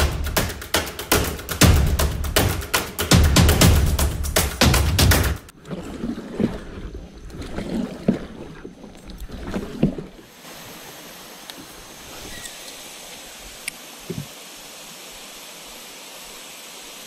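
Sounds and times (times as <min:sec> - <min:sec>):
music with heavy beat: 0:00.0 - 0:05.5.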